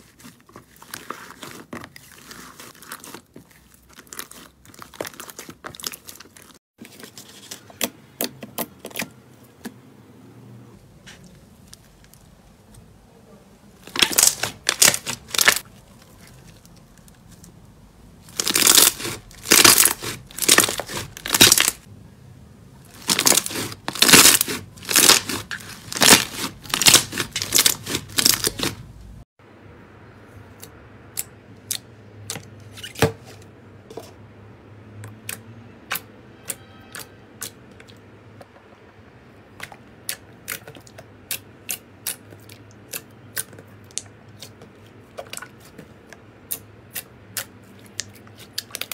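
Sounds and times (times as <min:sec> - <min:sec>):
slime squishing: 0:00.0 - 0:09.7, 0:13.8 - 0:21.9, 0:22.8 - 0:29.2, 0:39.4 - 0:48.9.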